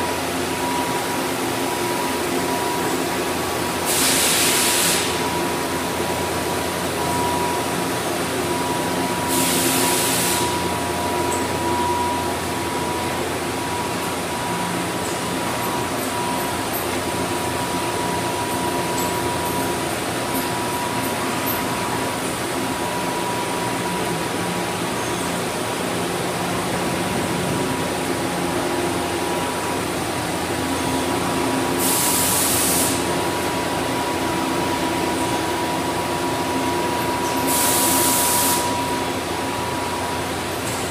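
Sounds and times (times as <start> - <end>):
lathe humming with whine: 0.0 - 40.9
air hissing bursts: 3.8 - 5.3, 9.3 - 10.7, 31.8 - 33.1, 37.4 - 38.7.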